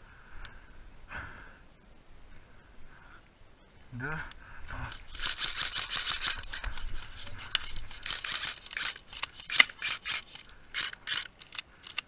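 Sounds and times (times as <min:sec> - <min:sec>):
clothing and grass rustling: 0:02.0 - 0:11.5
rifle handling clicks: 0:05.1 - 0:12.0.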